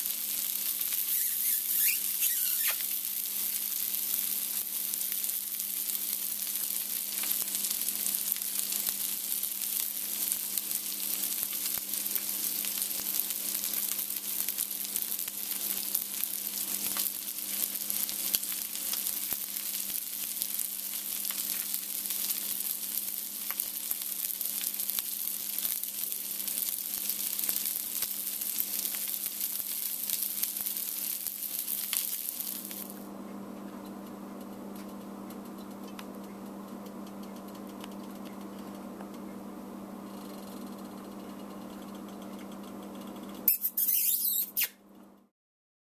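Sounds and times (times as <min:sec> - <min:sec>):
food sizzling in a pan: 0:00.0 - 0:33.0, 0:43.5 - 0:44.7.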